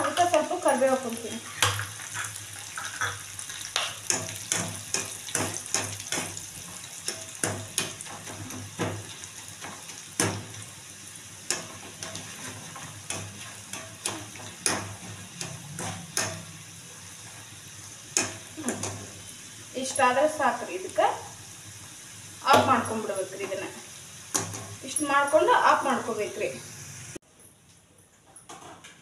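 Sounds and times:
utensil stirring in pan: 0:00.0 - 0:20.2
food frying in hot oil: 0:00.0 - 0:27.2.

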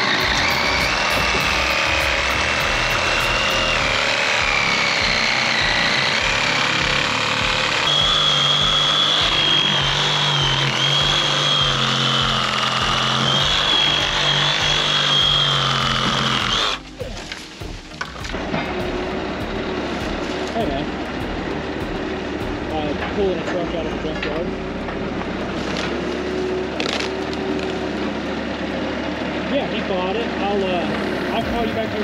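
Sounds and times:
reciprocating saw cutting wood: 0:00.0 - 0:29.0.

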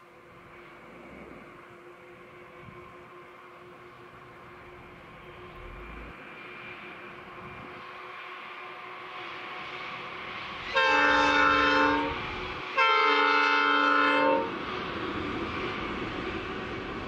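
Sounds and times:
train rumble: 0:00.0 - 0:17.0
locomotive horn blasts: 0:10.7 - 0:12.2, 0:12.8 - 0:14.5.

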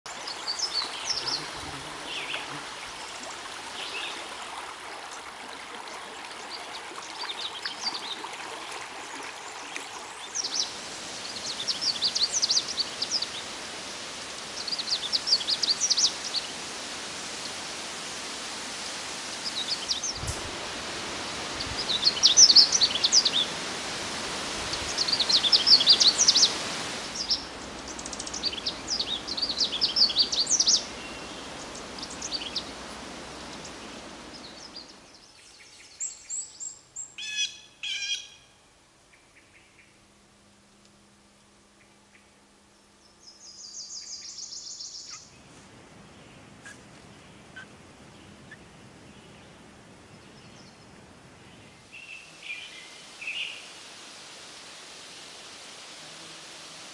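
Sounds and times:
warbler singing: 0:00.1 - 0:02.6, 0:21.6 - 0:23.5, 0:24.8 - 0:32.8, 0:33.5 - 0:38.4, 0:41.8 - 0:45.4
bird singing clear notes: 0:00.3 - 0:02.6.

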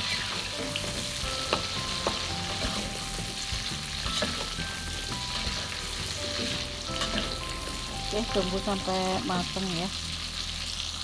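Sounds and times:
wooden spatula scraping a wok: 0:00.0 - 0:07.9
food sizzling in hot oil: 0:00.0 - 0:11.0.

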